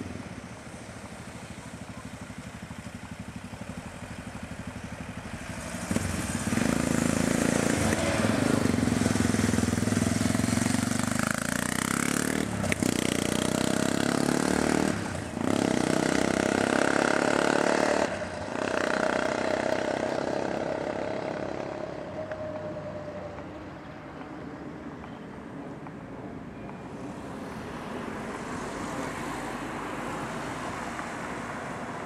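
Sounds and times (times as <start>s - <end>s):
motorcycle engine accelerating: 1.8s - 22.1s.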